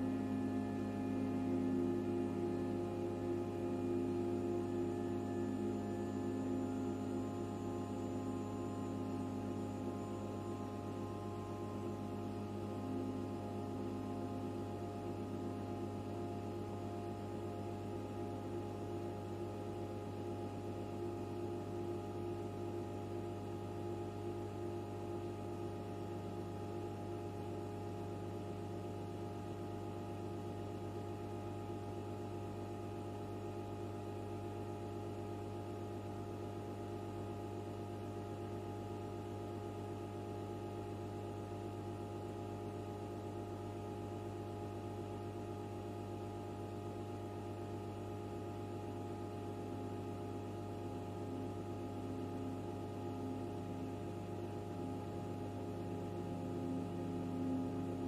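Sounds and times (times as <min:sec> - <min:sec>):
high held tones: 0:00.0 - 0:15.6
computer electrical hum: 0:00.0 - 0:58.0.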